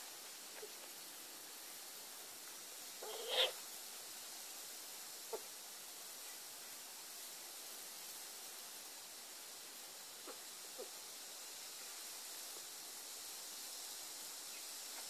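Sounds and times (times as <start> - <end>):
faint kitten squeak: 3.0 - 3.6
kitten mewing: 3.0 - 3.6.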